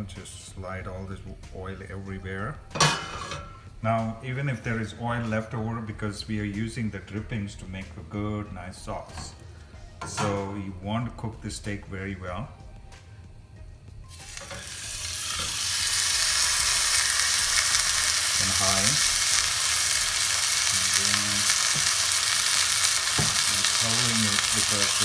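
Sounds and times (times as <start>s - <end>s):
steak sizzling in a pan: 14.1s - 25.0s.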